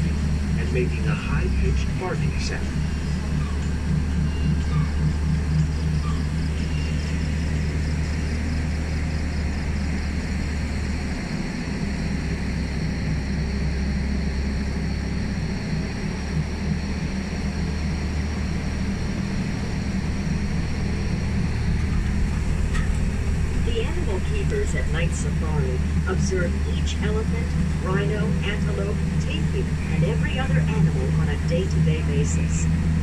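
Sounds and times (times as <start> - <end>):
vehicle rumble and hum: 0.0 - 33.0.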